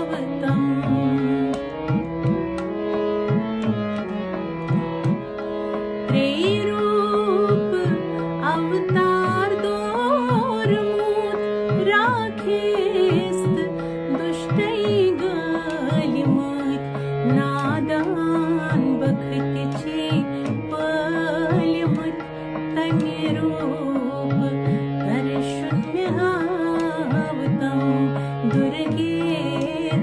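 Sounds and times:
woman singing devotional song: 0.0 - 5.2, 5.8 - 30.0
held instrumental tones: 0.6 - 6.2
drum strokes: 4.6 - 5.4.

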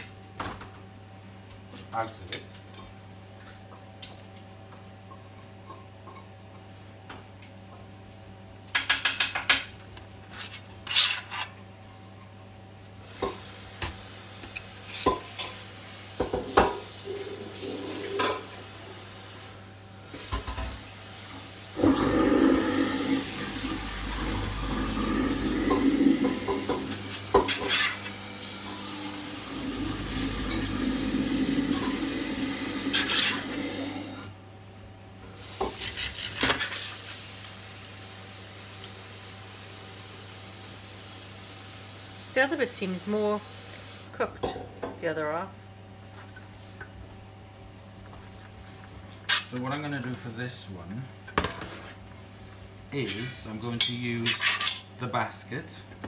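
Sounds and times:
knife scraping metal tray: 10.2 - 11.6, 27.4 - 28.1, 32.9 - 33.4, 35.6 - 37.0, 48.1 - 49.6, 53.0 - 54.9
knife sawing through meat: 35.7 - 37.0.

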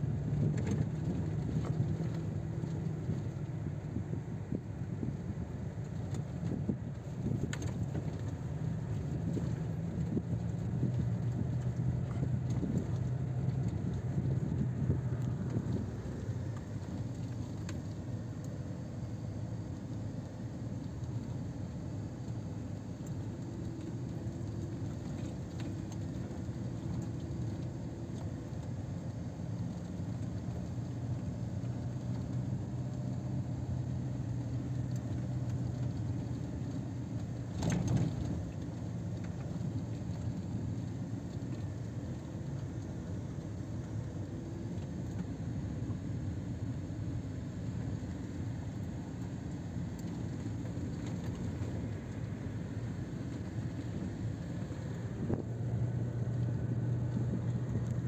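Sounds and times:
car engine and tyres rumbling: 0.0 - 58.0.

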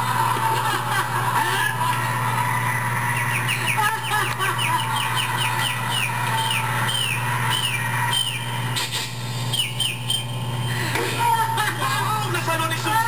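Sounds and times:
steady low hum: 0.0 - 13.0
high falling chirps: 2.2 - 8.8, 9.4 - 10.8.

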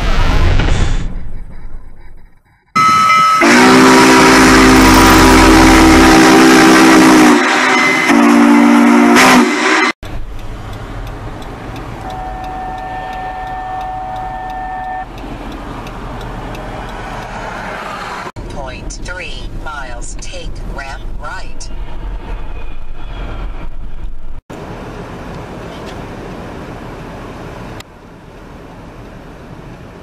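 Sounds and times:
steam locomotive whistle: 2.8 - 10.0, 12.0 - 15.1
quiet street sound: 10.0 - 30.0.

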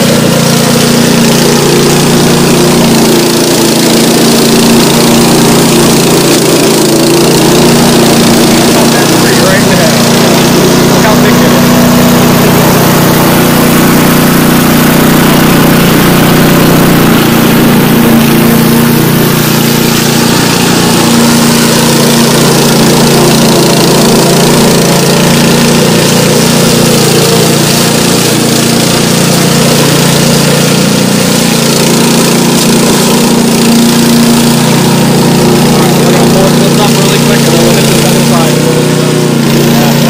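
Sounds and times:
brush mower engine running: 0.0 - 40.0.

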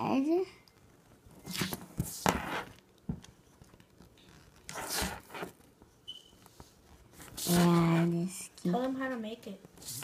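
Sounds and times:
pencil scratching on paper: 4.7 - 5.6.

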